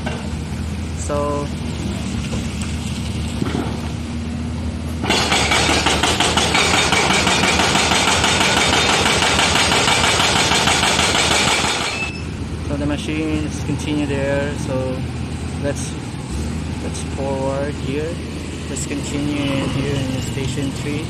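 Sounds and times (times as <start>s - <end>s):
excavator diesel engine running: 0.0s - 21.0s
hydraulic attachment rattling: 5.0s - 12.2s.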